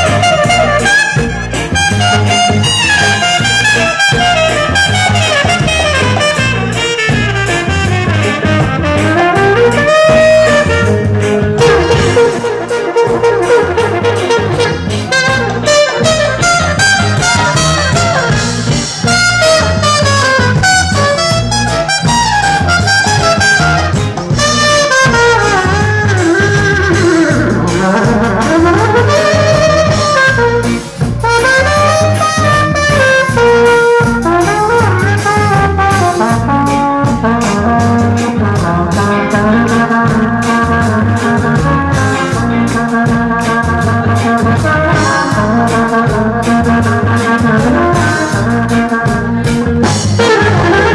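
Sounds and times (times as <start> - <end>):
live ska band: 0.0 - 50.9
trumpet and saxophone melody: 0.0 - 50.9.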